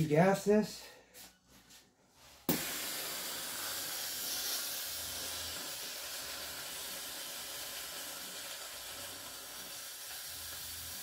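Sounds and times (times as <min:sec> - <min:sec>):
gas hissing: 0:02.4 - 0:11.0.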